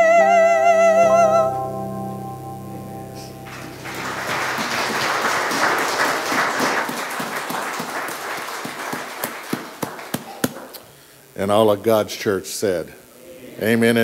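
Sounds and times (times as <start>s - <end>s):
congregation applauding: 3.2s - 10.8s.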